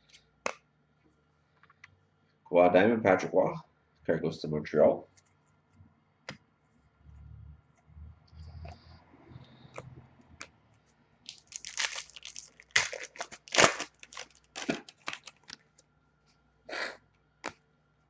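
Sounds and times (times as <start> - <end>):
wrapper tearing and crinkling: 11.3 - 15.6.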